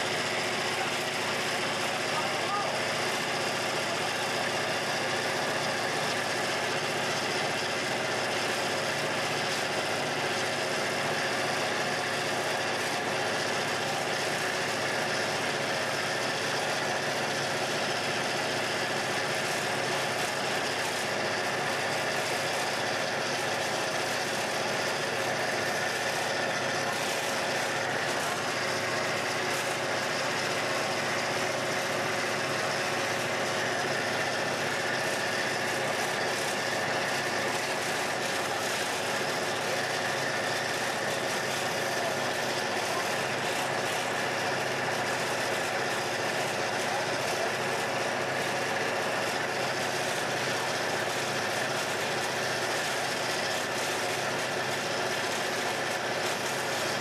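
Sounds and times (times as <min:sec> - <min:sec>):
diesel locomotive engine droning: 0:00.0 - 0:57.0.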